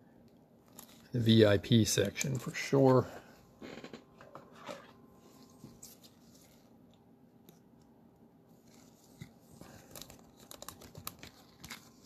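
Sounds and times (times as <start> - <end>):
plastic packaging crinkling: 8.8 - 12.0.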